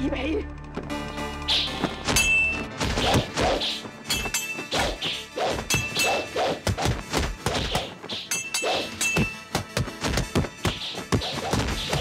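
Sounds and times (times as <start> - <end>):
punch and strike whacks: 2.8 - 3.8
swishes: 4.5 - 9.0.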